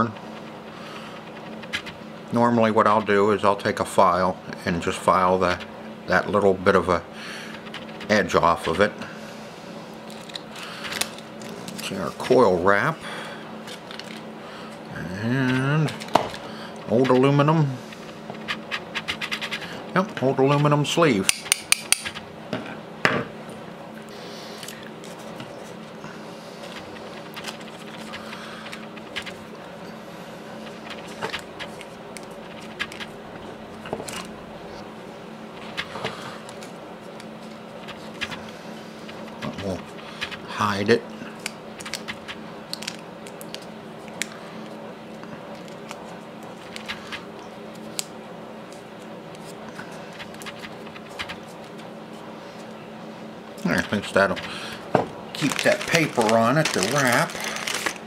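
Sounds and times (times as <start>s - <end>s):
tape crinkling and ticking: 0.0s - 2.0s, 10.0s - 12.5s, 13.6s - 14.3s, 15.2s - 19.7s, 26.6s - 29.7s, 30.6s - 34.4s, 35.6s - 40.6s, 41.3s - 51.9s, 53.6s - 58.0s
steady low hum: 0.0s - 58.0s
paper rustling: 13.7s - 14.3s, 26.6s - 29.5s, 30.6s - 33.2s, 35.6s - 36.8s, 37.4s - 40.5s, 49.4s - 51.9s, 53.7s - 58.0s.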